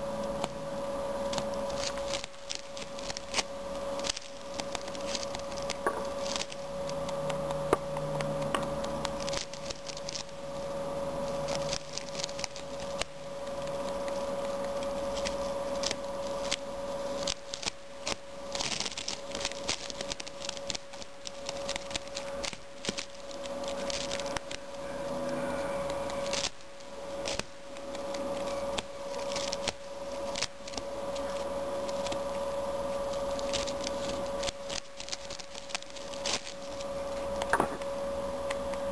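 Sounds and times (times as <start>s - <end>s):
faint steady hum: 0.0s - 38.9s
rabbit gnawing dried grass: 0.0s - 38.9s.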